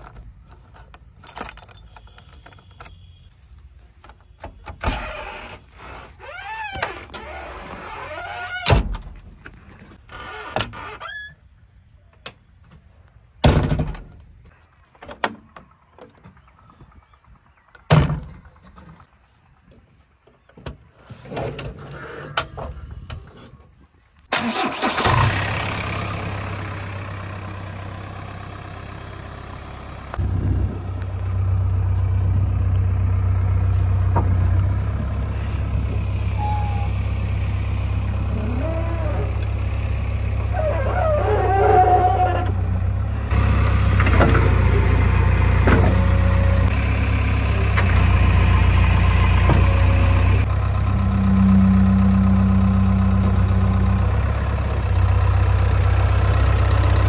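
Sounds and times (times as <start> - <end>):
diesel engine idling: 24.3 - 57.0.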